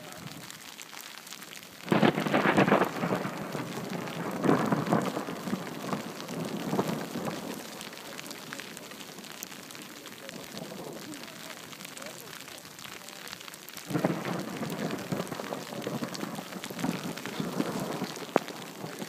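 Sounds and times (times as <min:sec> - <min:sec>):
thunder crack and rumble: 0:01.8 - 0:11.8, 0:13.9 - 0:19.0.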